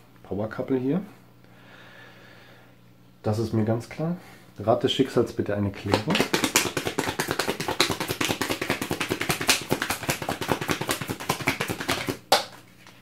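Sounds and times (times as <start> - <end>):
cards being shuffled: 5.8 - 13.0
sharp tap: 5.9 - 12.6.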